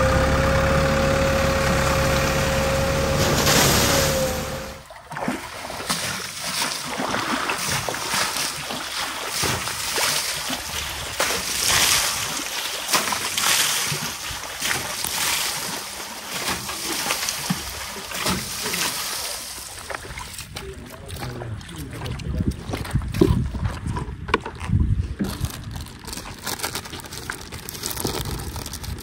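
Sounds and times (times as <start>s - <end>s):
water splashing against tractor: 0.0s - 29.0s.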